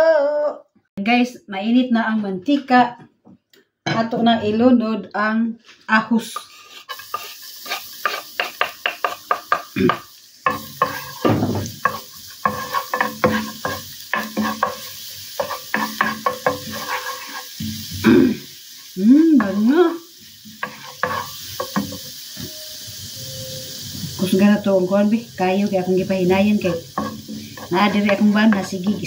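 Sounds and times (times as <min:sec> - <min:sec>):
wooden spoon scraping a pan: 0:05.7 - 0:18.1, 0:19.4 - 0:22.6, 0:25.6 - 0:29.0
garlic sizzling in oil: 0:06.2 - 0:29.0.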